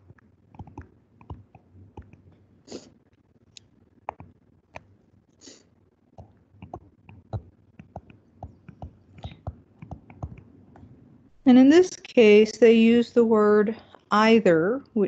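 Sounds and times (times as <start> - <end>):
stylus tapping on tablet screen: 0.0 - 2.2, 4.1 - 4.9, 6.2 - 11.0.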